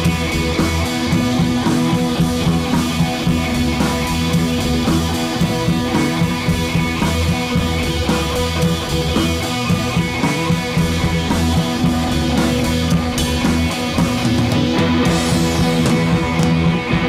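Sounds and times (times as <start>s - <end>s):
rock music with guitar: 0.0s - 17.0s.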